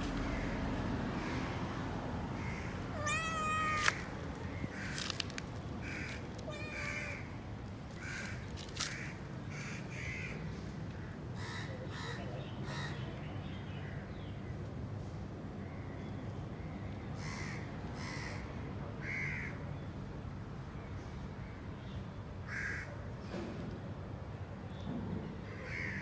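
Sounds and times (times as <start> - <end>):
crows cawing: 0.2 - 0.6, 2.4 - 7.3, 8.0 - 13.0, 17.2 - 18.4, 19.0 - 19.5, 22.5 - 22.9, 25.5 - 26.0
cat meowing: 2.9 - 4.2, 5.9 - 7.3.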